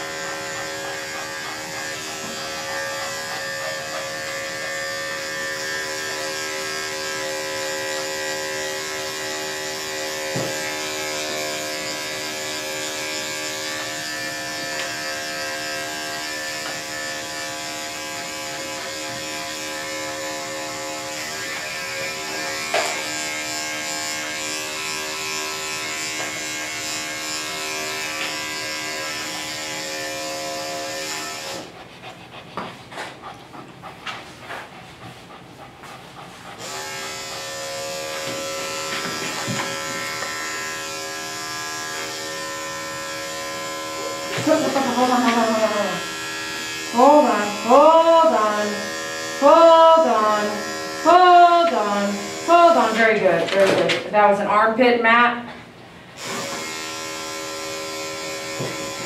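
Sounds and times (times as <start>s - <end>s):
electric dog clippers humming: 0.0s - 59.0s.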